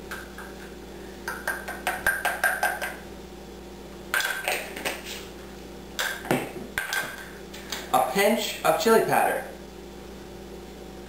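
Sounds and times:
spice shaker tapping glass: 0:01.3 - 0:03.0.

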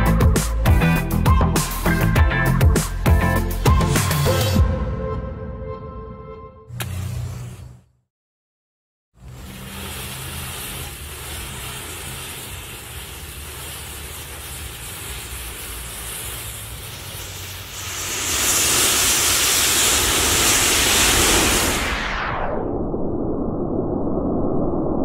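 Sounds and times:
matchsticks igniting and hissing: 0:09.2 - 0:21.9.

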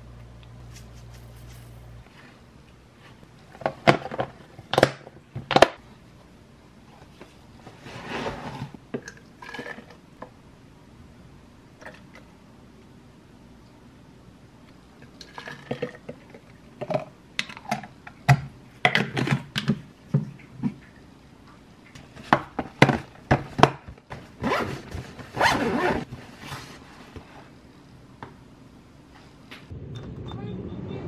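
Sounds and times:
zipper pulled: 0:24.4 - 0:26.1.

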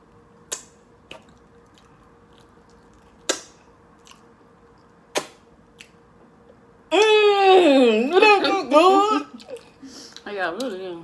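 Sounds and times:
wet mouth smacks: 0:00.5 - 0:01.9, 0:03.0 - 0:04.2, 0:05.1 - 0:06.0.

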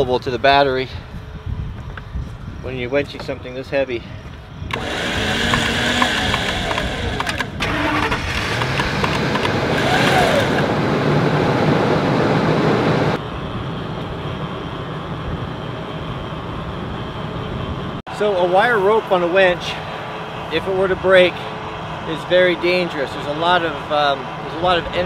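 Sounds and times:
truck engine running: 0:04.7 - 0:13.2.

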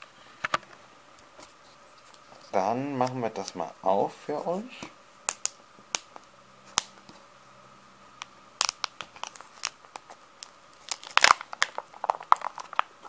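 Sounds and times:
plastic crinkles: 0:08.6 - 0:13.0.

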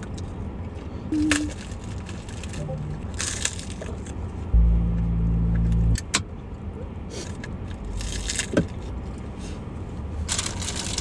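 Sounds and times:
loud low hum: 0:02.6 - 0:03.6, 0:04.5 - 0:06.1.

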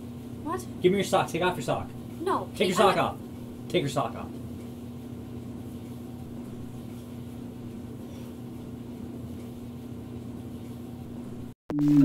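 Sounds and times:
clothes dryer humming: 0:00.0 - 0:12.0
electronic tone falling in pitch: 0:11.7 - 0:12.0.

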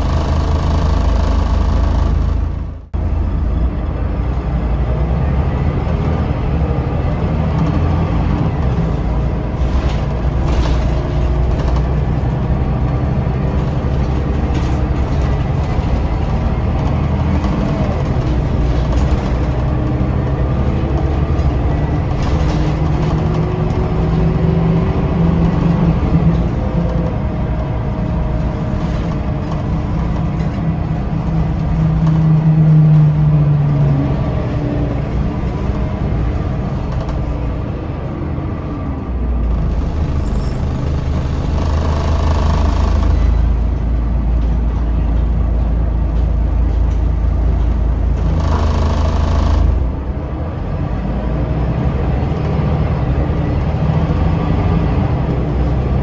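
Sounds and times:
bus diesel engine running: 0:00.0 - 0:56.0.

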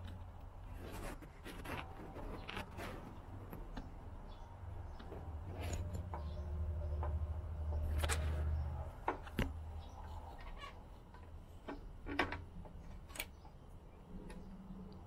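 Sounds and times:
light clicks and knocks: 0:01.6 - 0:13.6.

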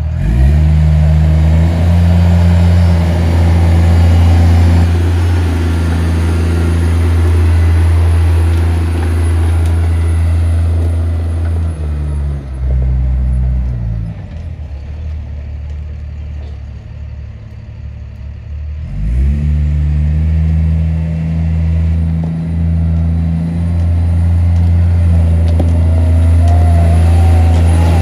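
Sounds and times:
wheel loader diesel engine revving: 0:00.0 - 0:28.0
thin rising whine: 0:25.1 - 0:28.0.

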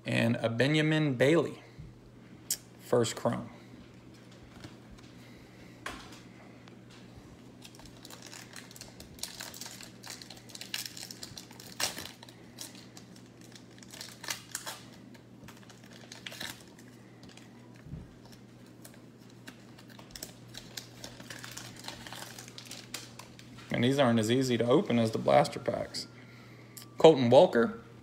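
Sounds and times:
low steady hum: 0:00.0 - 0:28.0
wrapper crinkling as torn open: 0:07.6 - 0:24.0.

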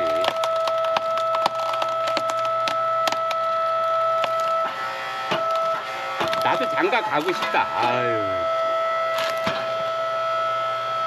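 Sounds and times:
wood cracking and splintering: 0:00.0 - 0:07.8, 0:09.1 - 0:09.7
hydraulic pump whine: 0:00.0 - 0:11.0.

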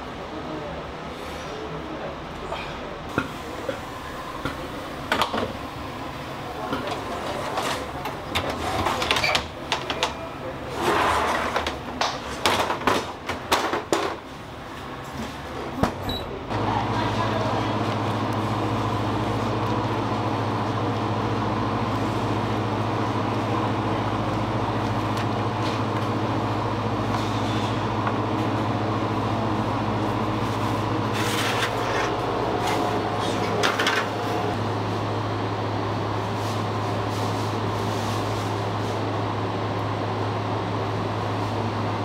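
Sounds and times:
bakery machinery humming: 0:00.0 - 0:42.0.

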